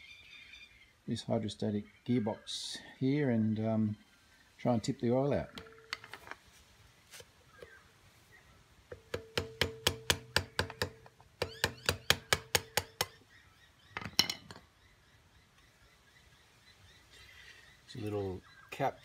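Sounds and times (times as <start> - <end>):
metal bar tapping on metal: 8.9 - 13.2.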